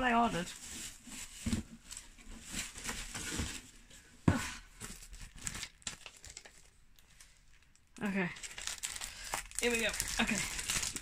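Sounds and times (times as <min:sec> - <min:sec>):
plastic packaging crinkling: 0:04.8 - 0:11.0.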